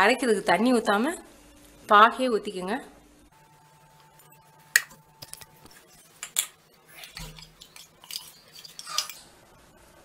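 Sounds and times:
metal vessels clinking: 6.4s - 9.2s.

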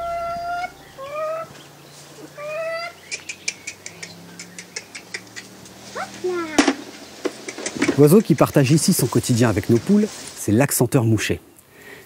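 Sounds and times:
hens calling: 0.0s - 10.1s
short sharp hen ticks: 3.0s - 5.8s.

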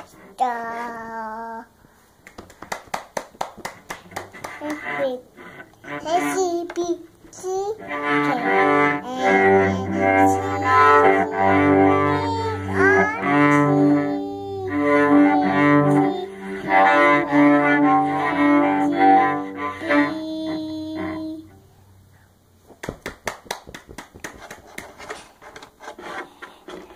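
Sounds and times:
cello bowed: 4.1s - 21.8s
child singing: 6.0s - 21.6s.

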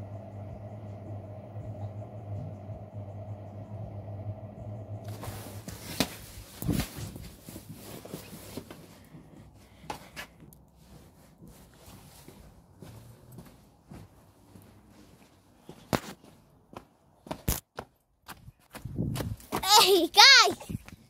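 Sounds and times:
low mechanical hum: 0.0s - 15.8s.

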